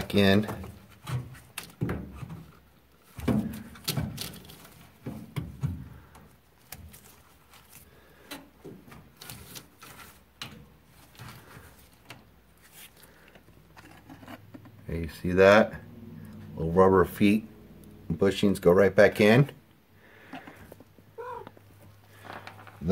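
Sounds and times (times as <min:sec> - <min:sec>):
plastic parts clicking and knocking: 0:00.0 - 0:07.2.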